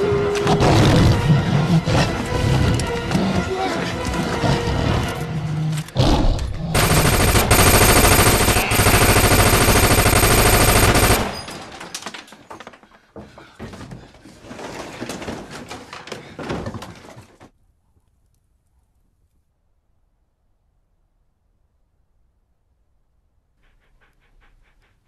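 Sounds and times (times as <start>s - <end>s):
automatic gunfire: 6.8s - 11.7s
scattered noises: 6.8s - 11.7s.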